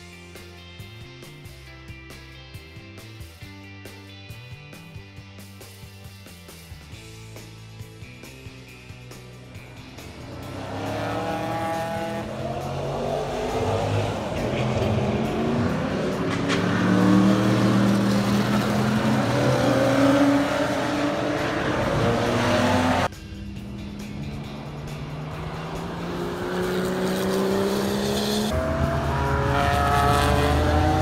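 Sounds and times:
race car engines passing: 0:09.6 - 0:31.0.

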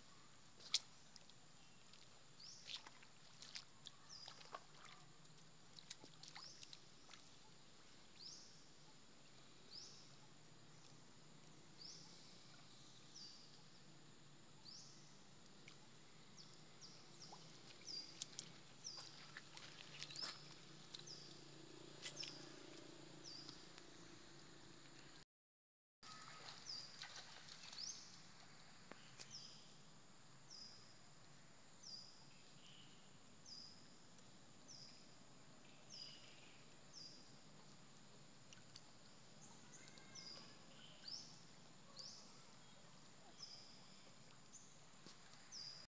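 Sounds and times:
small splashes: 0:00.6 - 0:08.0, 0:16.4 - 0:23.7, 0:26.0 - 0:29.4.

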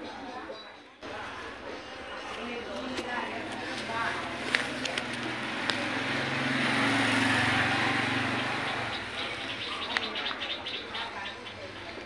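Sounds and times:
vehicle passing by: 0:03.6 - 0:10.3.

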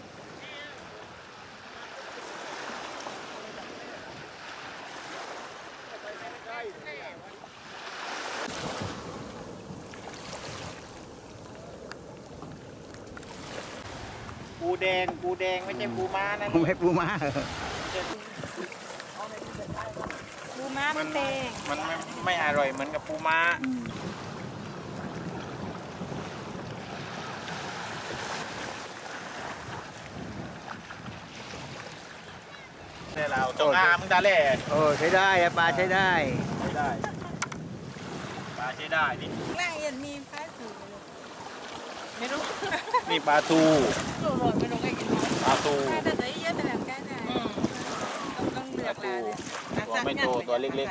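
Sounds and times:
small waves washing onto sand: 0:00.0 - 0:50.9
wind buffeting microphone: 0:19.2 - 0:41.1, 0:42.5 - 0:50.9.

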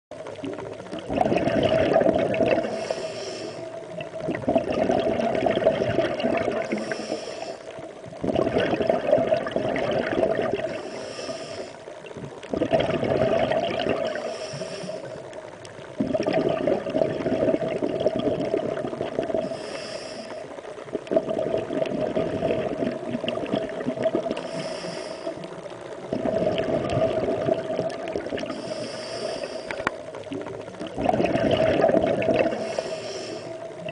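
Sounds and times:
water sloshing and bubbling: 0:00.1 - 0:33.9
breathing through a snorkel: 0:02.6 - 0:03.8, 0:06.6 - 0:07.8, 0:10.6 - 0:12.0, 0:14.1 - 0:15.3, 0:19.4 - 0:20.6, 0:24.3 - 0:25.6, 0:28.4 - 0:29.9, 0:32.4 - 0:33.7.

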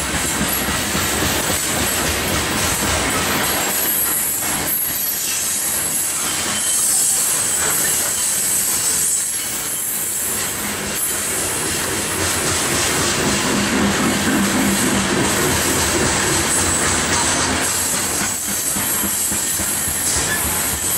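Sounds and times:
clacks at rail joints: 0:00.0 - 0:05.6, 0:06.2 - 0:20.9
train wheels rumbling on rails: 0:00.0 - 0:20.9
high-pitched wheel squeal: 0:03.9 - 0:11.2, 0:18.6 - 0:20.9.

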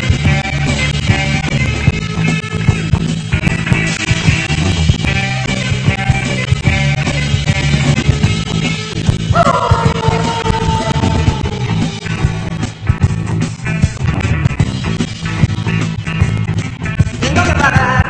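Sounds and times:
rock music: 0:00.0 - 0:18.0
long held note: 0:09.4 - 0:12.6.

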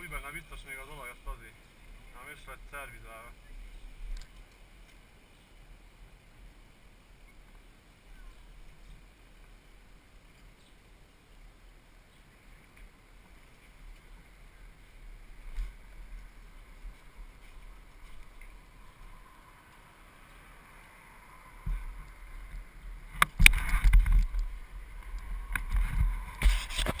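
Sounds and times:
faint street ambience: 0:00.0 - 0:27.0
camera handling noise: 0:23.2 - 0:24.5, 0:25.5 - 0:27.0.

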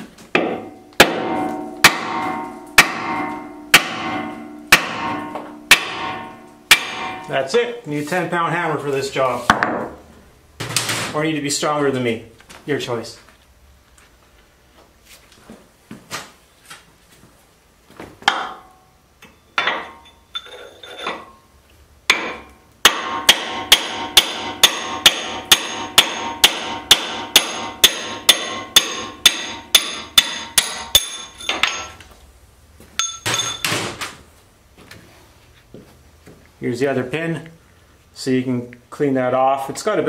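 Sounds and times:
hammer striking steel: 0:00.4 - 0:07.5, 0:22.1 - 0:32.0, 0:33.0 - 0:34.0.

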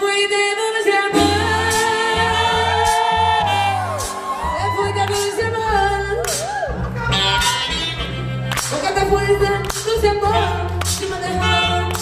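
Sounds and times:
person singing: 0:00.0 - 0:06.6
merengue band playing: 0:01.1 - 0:09.3
pulsing bass beat: 0:01.2 - 0:12.0.

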